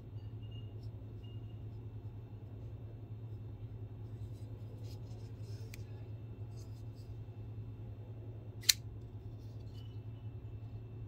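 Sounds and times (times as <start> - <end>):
folding knife snapping open: 8.6 - 8.8.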